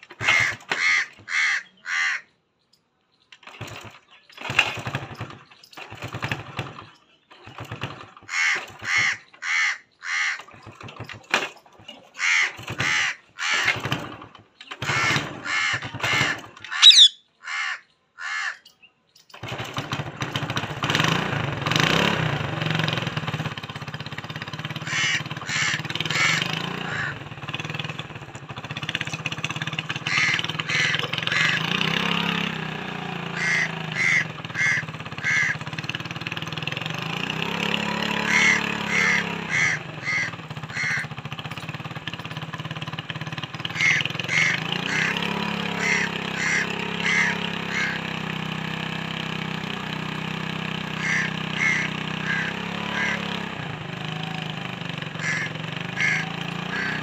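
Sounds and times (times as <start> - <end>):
parakeet harsh calls: 0.2 - 2.3, 8.3 - 10.4, 12.2 - 13.6, 14.8 - 18.6, 24.8 - 27.2, 30.1 - 31.7, 33.3 - 35.6, 38.2 - 41.1, 43.8 - 48.0, 51.0 - 53.3, 55.2 - 57.0
steady engine hum: 3.4 - 18.5, 19.4 - 57.0.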